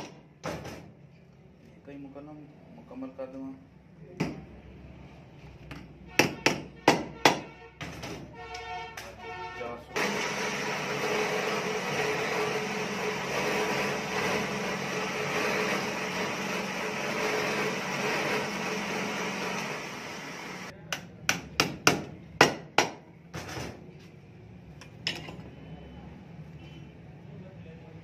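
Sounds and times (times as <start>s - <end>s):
drill press motor running: 10.0s - 20.7s.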